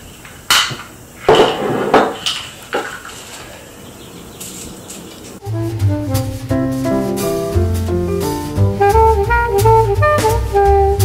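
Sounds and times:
music with a beat: 5.4 - 11.0.

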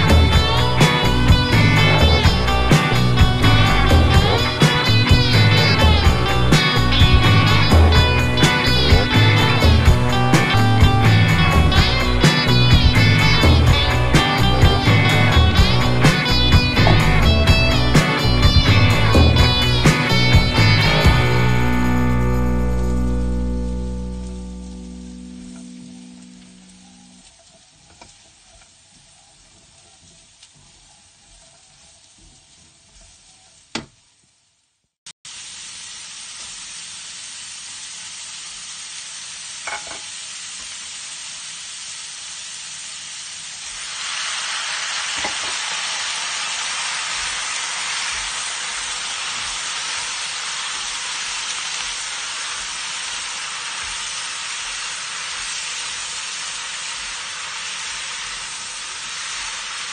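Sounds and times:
food sizzling in a pan: 0.0 - 34.6, 35.3 - 59.9.

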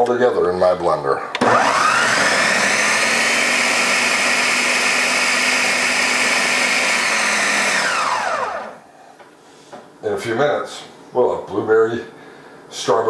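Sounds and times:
blender motor whining: 1.4 - 8.8.

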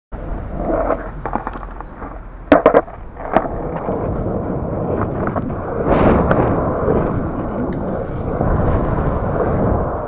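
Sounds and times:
skateboard wheels rolling on concrete: 0.2 - 10.0
sharp skateboard clacks: 0.7 - 4.0.

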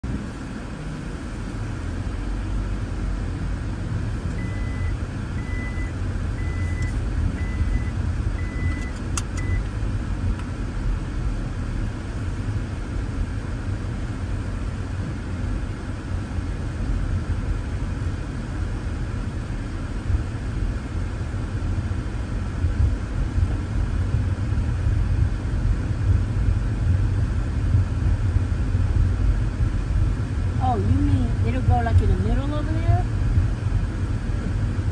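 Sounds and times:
car engine and tyre noise: 0.0 - 34.9
short high beeps: 4.3 - 9.7
click: 8.7 - 9.7.

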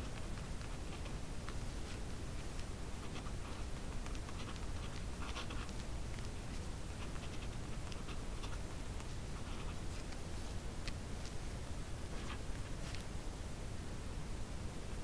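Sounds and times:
steady low hum: 0.0 - 15.0
pen scratching on paper: 3.0 - 10.0.

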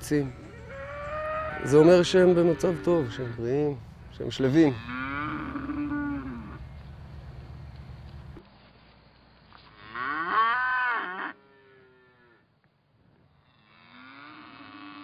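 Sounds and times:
low steady hum: 0.0 - 9.9
calf mooing: 0.4 - 3.5, 4.7 - 6.6, 9.8 - 12.4, 13.5 - 15.0.

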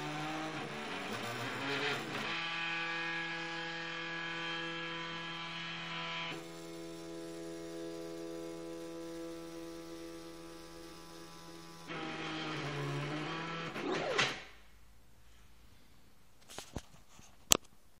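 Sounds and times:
plotter motors humming whine: 0.0 - 14.3.

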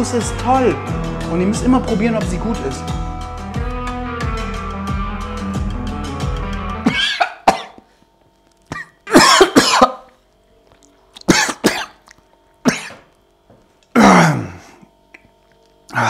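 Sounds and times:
background music: 0.0 - 7.2
man coughing: 6.9 - 7.8, 8.7 - 10.1, 11.3 - 12.0, 12.6 - 13.1, 13.9 - 14.7.

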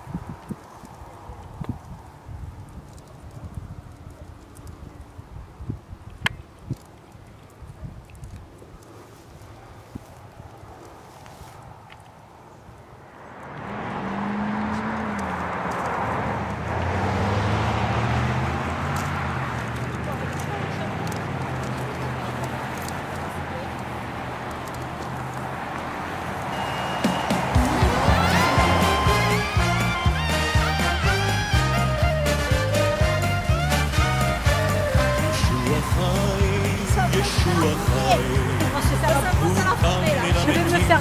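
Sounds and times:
footsteps through long grass: 6.6 - 12.8
road traffic passing: 8.4 - 41.0.

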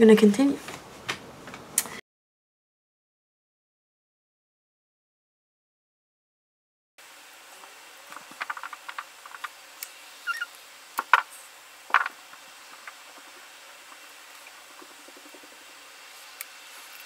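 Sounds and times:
brief squeak: 10.2 - 10.5.

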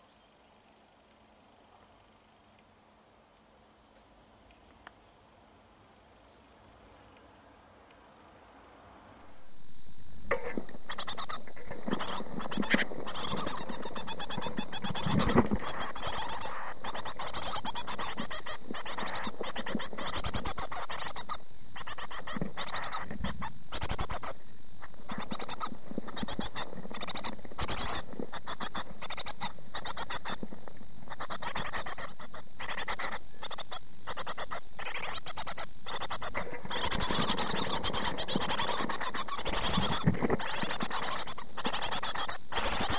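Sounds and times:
steady high hiss: 0.0 - 42.9
chicks scratching and rustling: 9.3 - 42.9
nestlings begging calls: 9.4 - 42.9.

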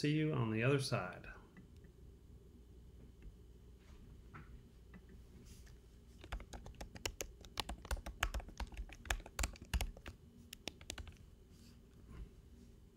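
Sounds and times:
keyboard typing: 6.2 - 11.2.

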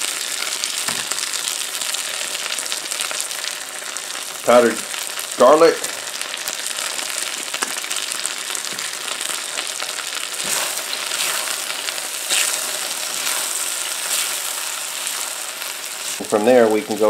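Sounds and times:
food sizzling in oil: 0.0 - 17.0
stirring in a wok: 10.4 - 16.2.

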